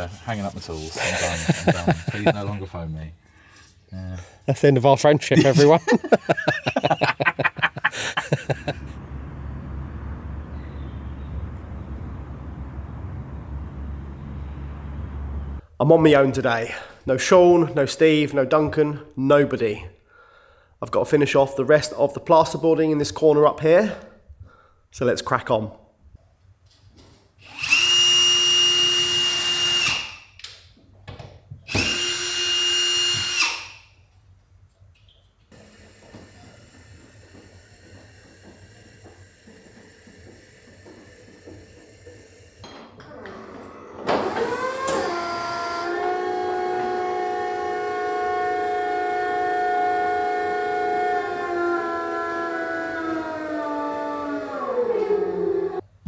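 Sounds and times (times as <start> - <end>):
person talking: 4.0 - 6.0
power drill whining: 6.4 - 15.6, 27.4 - 30.3, 31.7 - 33.9, 35.5 - 55.9
diesel engine running: 8.0 - 15.6.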